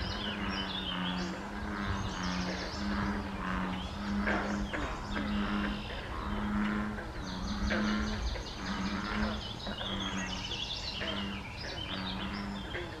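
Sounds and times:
deep frog call: 0.0 - 13.0.

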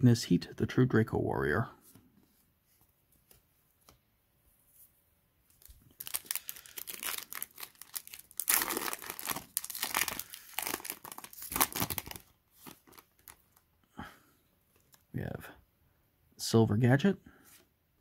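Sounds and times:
foil wrapper tearing and crinkling: 5.6 - 13.5.

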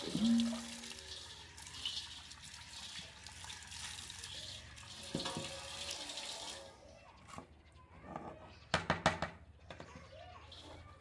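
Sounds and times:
water splashing into steel bowl: 0.0 - 6.6.

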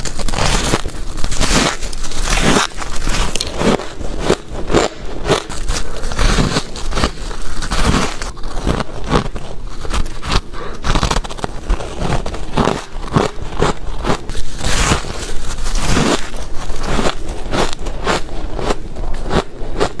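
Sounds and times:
chewing ice crunches: 0.0 - 20.0.

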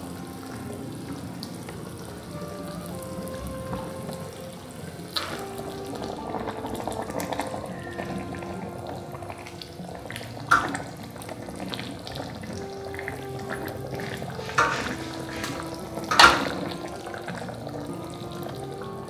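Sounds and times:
curry bubbling in a wok: 0.0 - 19.0
soft background music: 0.0 - 19.0
metal spatula stirring: 14.0 - 16.6.

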